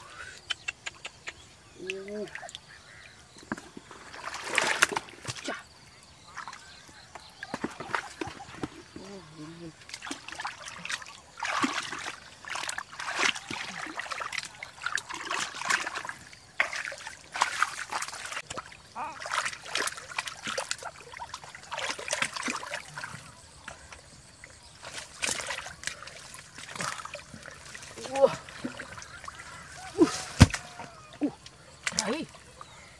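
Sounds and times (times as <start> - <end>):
hands splashing in muddy water: 3.9 - 5.6, 9.7 - 23.9, 24.8 - 31.1.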